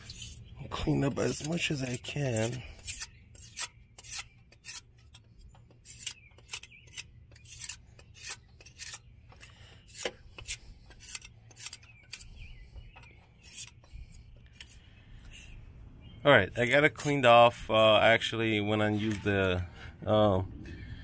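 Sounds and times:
scraper scraping metal: 0.0s - 12.4s, 13.4s - 15.5s.

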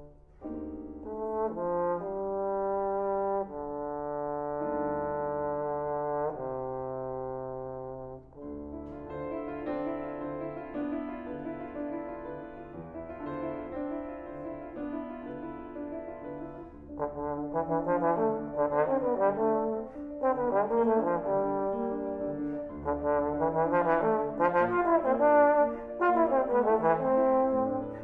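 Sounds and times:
piano accompaniment: 0.0s - 28.0s
trombone playing: 1.0s - 8.7s, 16.9s - 28.0s.

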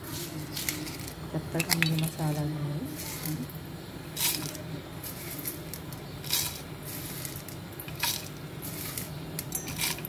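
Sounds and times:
steel jar and lid clinking: 7.2s - 10.0s.

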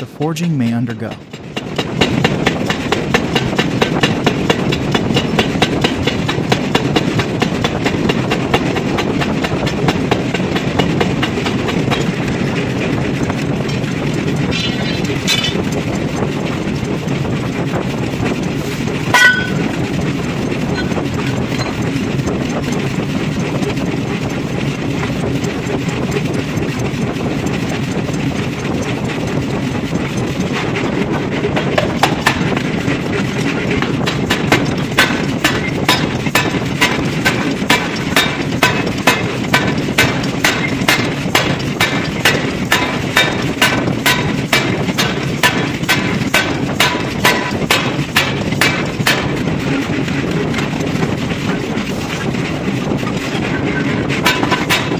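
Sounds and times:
forging machinery drone: 0.0s - 54.9s
ringing metal clanks: 13.6s - 15.6s, 19.1s - 19.8s, 20.7s - 22.0s.

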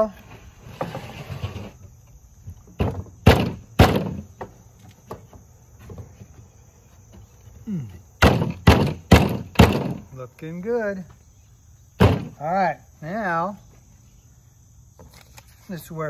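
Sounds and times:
wooden parts knocking: 8.2s - 10.1s.

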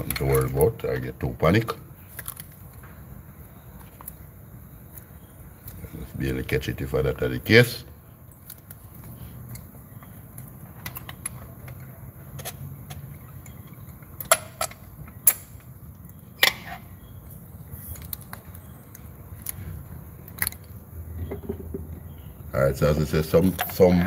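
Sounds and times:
metal socket clinking on engine: 9.5s - 15.7s.

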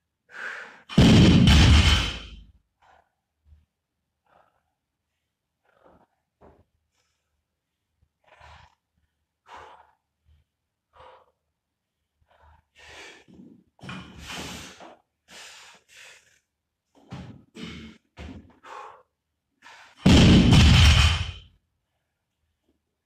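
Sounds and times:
man breathing hard: 0.3s - 0.9s, 17.6s - 20.0s.

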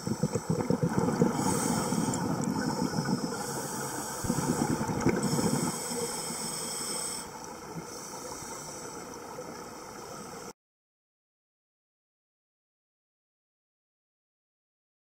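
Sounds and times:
underwater bubbles crackling: 0.0s - 6.4s
steady underwater hiss: 0.0s - 10.5s.

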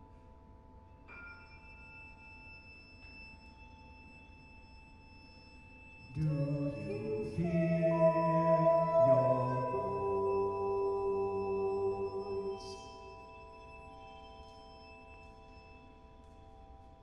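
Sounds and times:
chamber music ringing tones: 0.7s - 17.0s
person singing: 6.1s - 13.3s.

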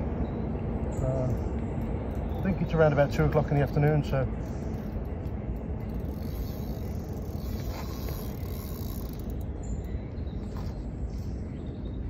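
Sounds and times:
steady low rumble: 0.0s - 12.0s
fishing reel whirring and clicking: 3.8s - 10.0s.

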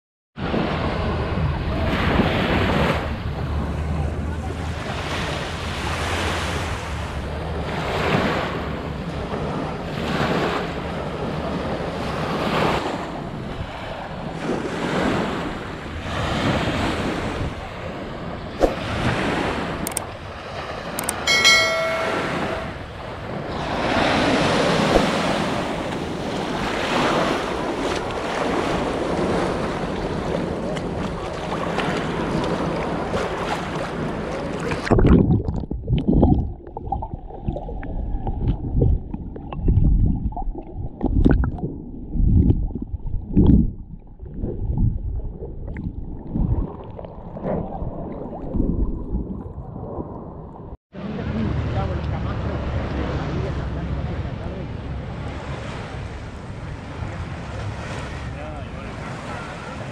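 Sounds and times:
surf washing in: 0.4s - 35.2s, 46.1s - 59.9s
wind buffeting microphone: 0.4s - 59.9s
sharp clicks: 19.8s - 20.1s, 21.0s - 21.2s
brief high-pitched tone: 21.2s - 22.8s.

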